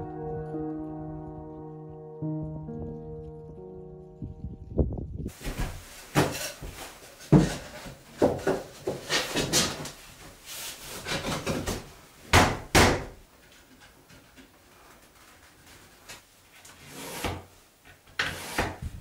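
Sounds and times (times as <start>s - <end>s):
wooden planks knocking: 7.3s - 9.9s.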